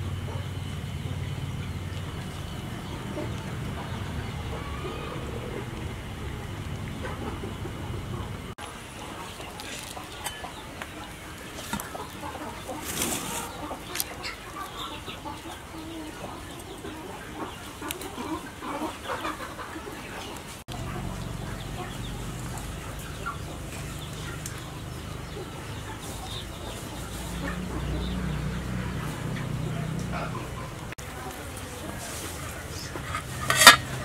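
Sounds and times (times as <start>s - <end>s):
low steady rumble: 0.0s - 8.6s
chickens clucking: 0.0s - 34.0s.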